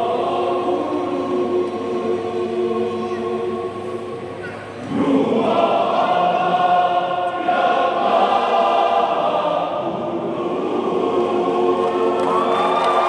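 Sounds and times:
men's choir singing: 0:00.0 - 0:13.0.

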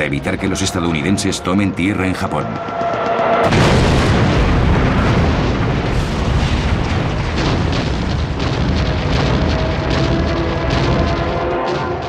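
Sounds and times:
explosions: 0:03.4 - 0:12.0
rapid gunfire: 0:03.4 - 0:12.0.

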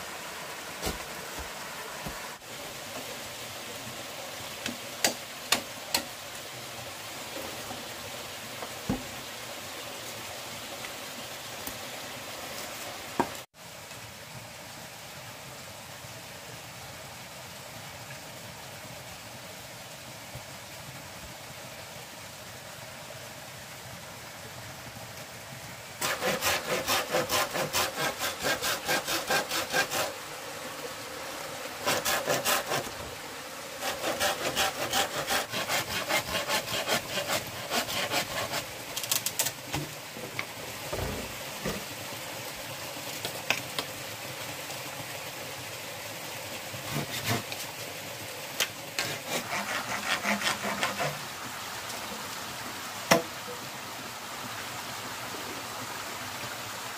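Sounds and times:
handsaw sawing bamboo: 0:04.6 - 0:06.1, 0:26.0 - 0:30.2, 0:31.8 - 0:33.1, 0:33.8 - 0:39.2, 0:46.8 - 0:47.6, 0:49.0 - 0:51.3.

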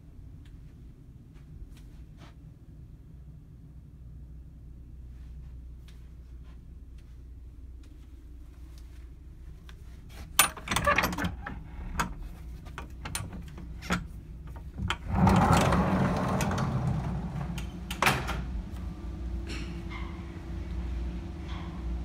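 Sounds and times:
sliding door clicks and knocks: 0:10.4 - 0:12.2, 0:12.8 - 0:18.6
low rumble: 0:14.9 - 0:22.0.

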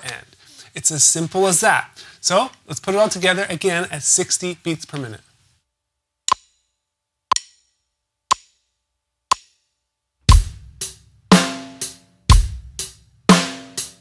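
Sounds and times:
metronome clicking: 0:06.3 - 0:06.7, 0:07.3 - 0:08.7, 0:09.3 - 0:09.7
rock beat on drum kit: 0:10.3 - 0:14.0.

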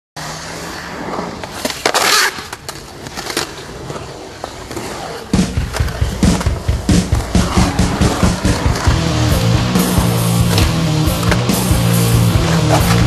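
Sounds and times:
loud skateboard scrape: 0:00.2 - 0:13.0
skateboard wheels rolling on concrete: 0:00.2 - 0:13.0
music with heavy low beat: 0:05.4 - 0:13.0
skateboard clacks: 0:12.4 - 0:13.0.

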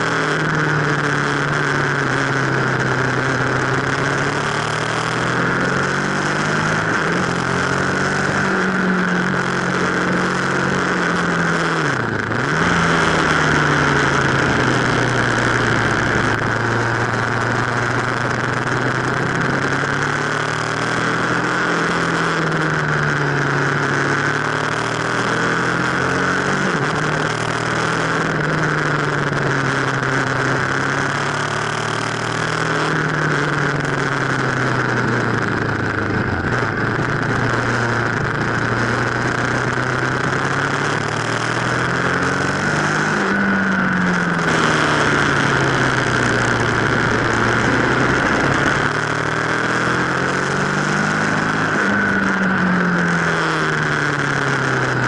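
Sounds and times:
motorcycle engine revving: 0:00.0 - 0:55.0
wind rush: 0:44.5 - 0:49.8.

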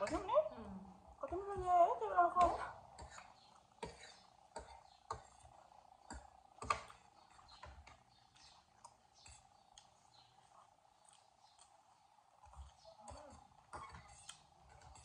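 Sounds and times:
cutlery clicking on plates: 0:06.0 - 0:09.9, 0:12.5 - 0:15.0.

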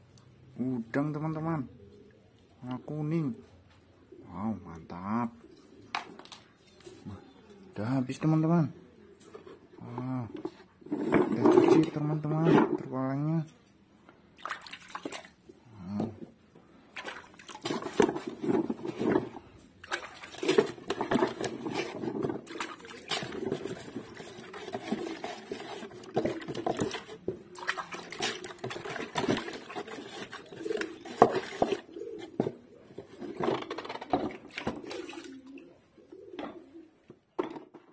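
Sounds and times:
water splashing and sloshing: 0:14.2 - 0:15.6, 0:16.4 - 0:35.8.

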